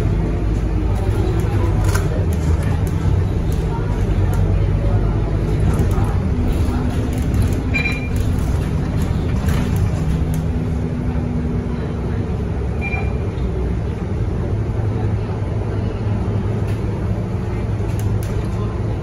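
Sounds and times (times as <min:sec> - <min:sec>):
bus diesel engine running: 0:00.0 - 0:19.0
road noise: 0:00.0 - 0:19.0.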